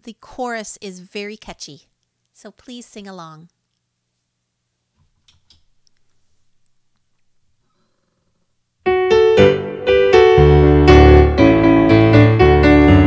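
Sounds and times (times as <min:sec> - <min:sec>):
digital piano playing hymn: 0:08.9 - 0:13.0.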